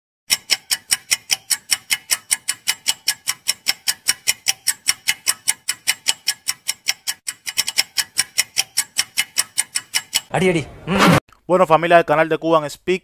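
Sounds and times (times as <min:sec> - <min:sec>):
fast countdown timer ticking: 0:00.3 - 0:10.4.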